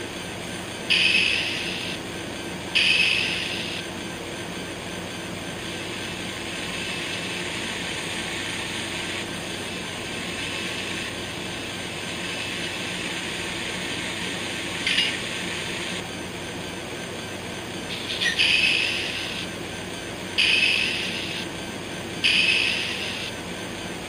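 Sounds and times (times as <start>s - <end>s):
diesel locomotive idling from small speaker: 0.0s - 2.1s, 2.7s - 4.1s, 16.8s - 24.0s.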